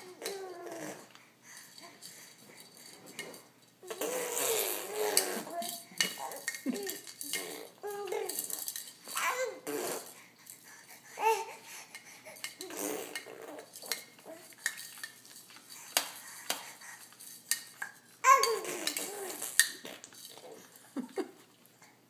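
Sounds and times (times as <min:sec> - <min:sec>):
infant babbling: 0:00.0 - 0:01.1, 0:03.8 - 0:10.2, 0:18.2 - 0:19.5
infant squealing: 0:03.9 - 0:05.7
plastic toys clicking: 0:03.9 - 0:09.4, 0:12.4 - 0:20.5.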